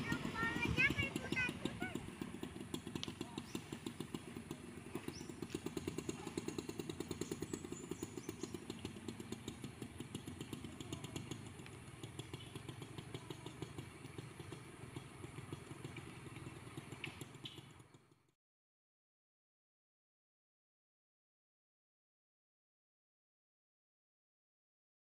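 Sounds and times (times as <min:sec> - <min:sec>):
diesel truck engine running: 0:00.0 - 0:18.3
motorcycle engine puttering: 0:00.0 - 0:18.3.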